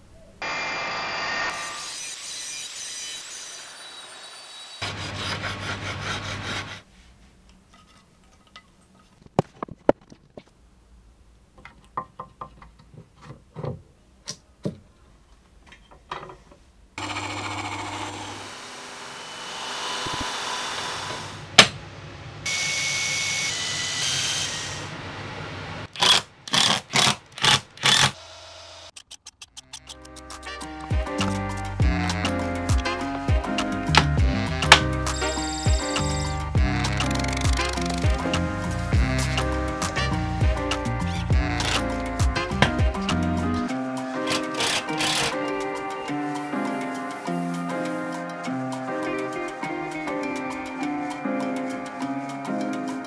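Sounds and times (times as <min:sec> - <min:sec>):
power tool running: 0:00.4 - 0:06.7, 0:17.0 - 0:21.4, 0:34.3 - 0:38.2, 0:44.2 - 0:45.4.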